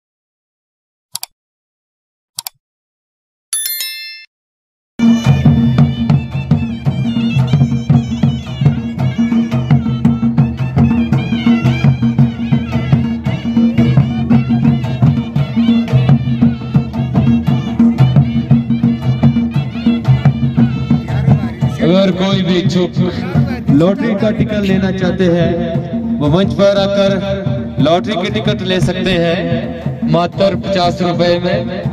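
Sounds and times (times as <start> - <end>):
high wavering melody: 3.6 - 4.3
folk drums beating: 5.0 - 31.9.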